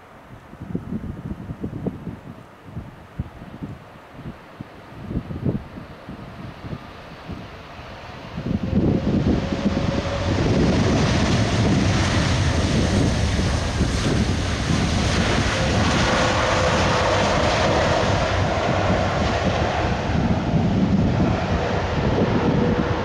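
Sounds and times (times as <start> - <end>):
wind buffeting microphone: 0.3 - 23.0
engine whine: 7.3 - 23.0
jet engines roaring: 7.3 - 23.0.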